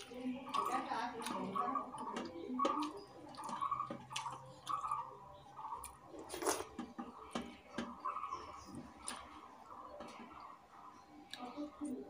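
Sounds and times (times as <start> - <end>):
wet chewing and mouth smacks: 0.0 - 6.8, 8.8 - 10.5.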